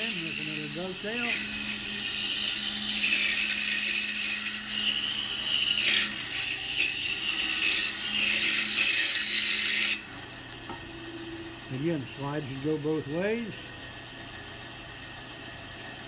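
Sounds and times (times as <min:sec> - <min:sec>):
saw blade cutting wood hiss: 0:00.0 - 0:05.0
scroll saw motor hum: 0:00.0 - 0:16.0.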